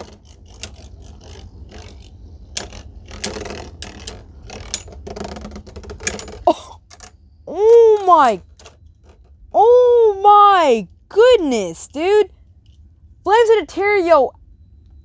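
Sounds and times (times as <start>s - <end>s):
spinning tops whirring: 0.0s - 6.4s.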